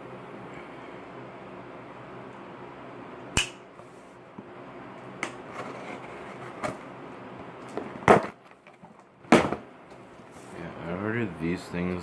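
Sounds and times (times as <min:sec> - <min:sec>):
sharp click: 0:03.4 - 0:03.6.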